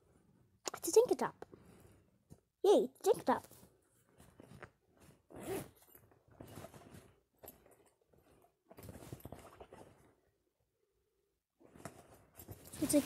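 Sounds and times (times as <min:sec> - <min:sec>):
clothing rustling: 0:01.6 - 0:10.3, 0:11.6 - 0:13.0.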